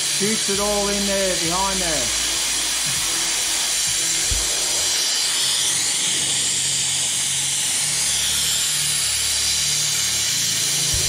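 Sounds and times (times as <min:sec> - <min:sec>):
air blow gun hissing: 0:00.0 - 0:11.0.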